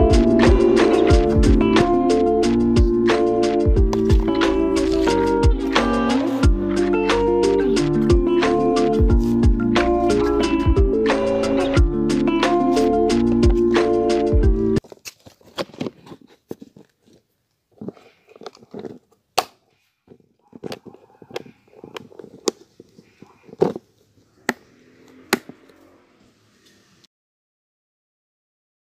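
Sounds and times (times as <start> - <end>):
music: 0.0 - 14.8.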